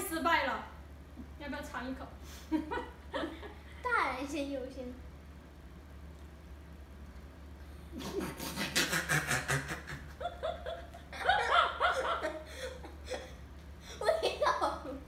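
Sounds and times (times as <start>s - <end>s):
woman and boy laughing: 8.0s - 15.0s.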